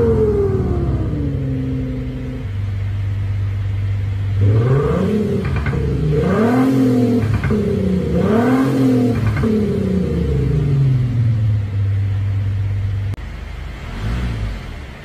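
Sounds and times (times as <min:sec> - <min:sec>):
synthesized engine idling and revving: 0:00.0 - 0:15.0.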